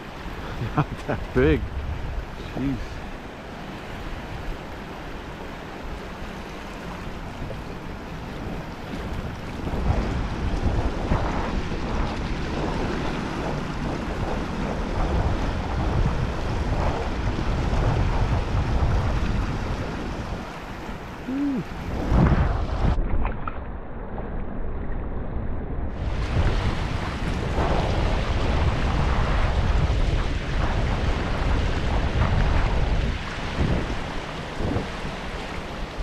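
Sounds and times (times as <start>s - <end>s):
river water rushing: 0.0s - 10.2s, 19.2s - 23.0s
wind buffeting microphone: 0.0s - 36.0s.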